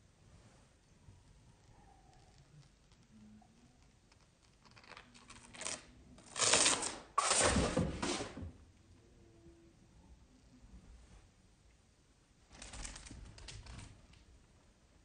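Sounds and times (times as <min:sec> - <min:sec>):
rustling and scraping: 0:06.3 - 0:08.6.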